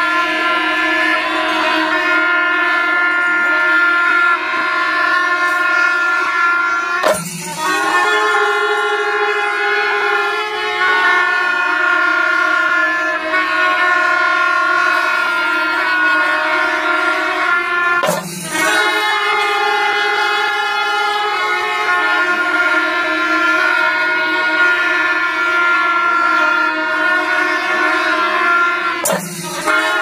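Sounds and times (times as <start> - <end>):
brass horns blowing long notes: 0.0 - 30.0.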